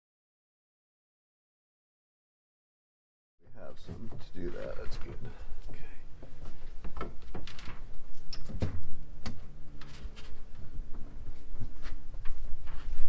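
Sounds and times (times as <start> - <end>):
cable rustling and scraping: 3.7 - 8.5, 9.8 - 13.0.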